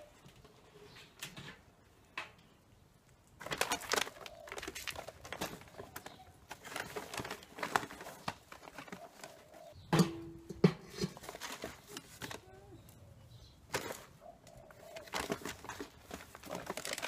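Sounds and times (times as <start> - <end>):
paper sack rustling: 3.4 - 9.8, 10.6 - 12.7, 13.6 - 17.0.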